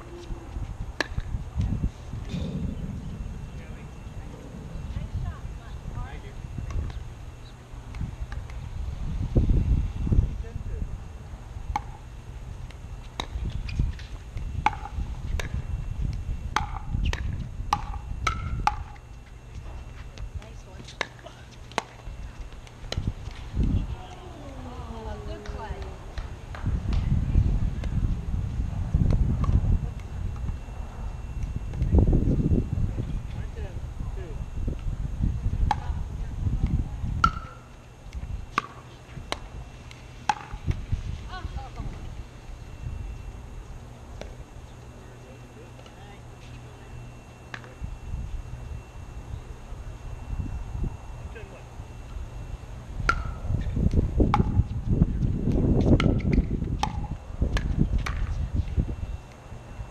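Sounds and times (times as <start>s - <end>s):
low rumble: 0.0s - 11.8s.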